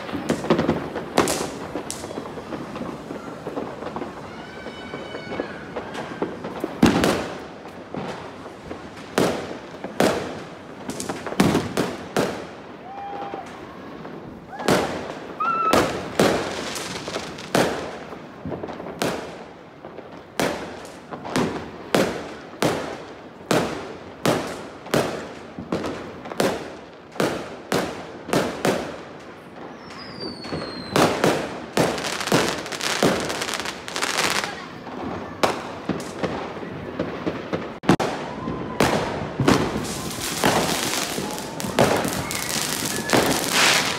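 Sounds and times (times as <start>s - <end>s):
whistling firework: 0.0s - 19.3s, 29.5s - 43.9s
fireworks bangs: 0.0s - 43.9s.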